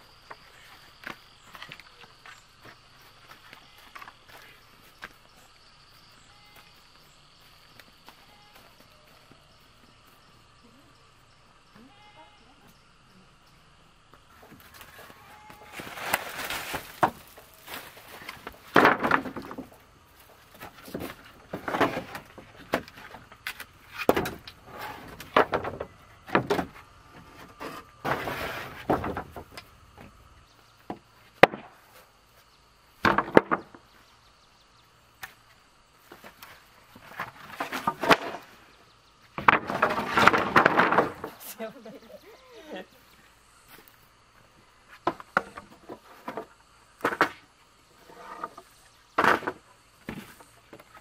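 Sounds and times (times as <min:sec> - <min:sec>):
wooden planks scraping: 0:14.4 - 0:30.1, 0:36.1 - 0:41.6, 0:44.8 - 0:51.0.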